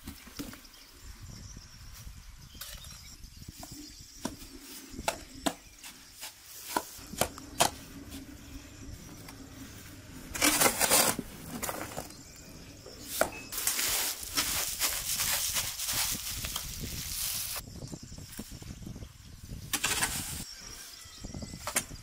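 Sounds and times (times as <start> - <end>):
shovel scraping stones in earth: 10.3 - 12.2, 19.8 - 20.4.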